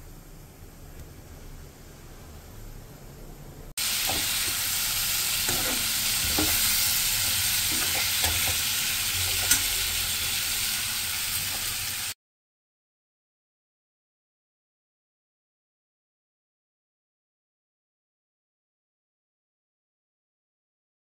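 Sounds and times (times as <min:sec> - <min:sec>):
vegetables sizzling in hot oil: 0:03.8 - 0:12.2
metal spatula scraping: 0:04.0 - 0:10.7.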